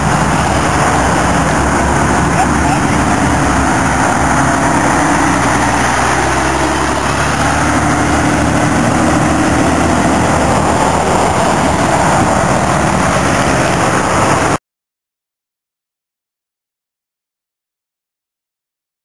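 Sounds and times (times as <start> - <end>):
coach passing and pulling away: 0.0 - 14.6
steady traffic noise: 0.0 - 14.6.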